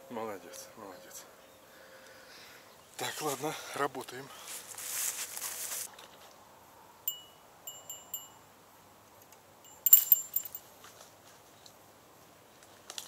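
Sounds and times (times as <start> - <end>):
bite alarm bell jingling: 7.1 - 8.4, 9.7 - 10.7.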